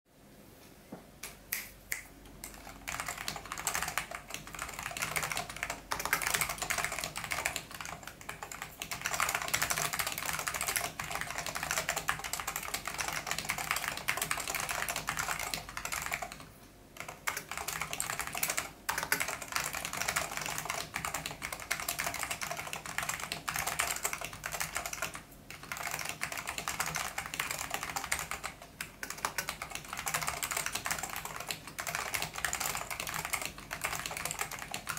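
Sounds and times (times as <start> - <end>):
fast typing on keyboard: 2.4 - 34.9.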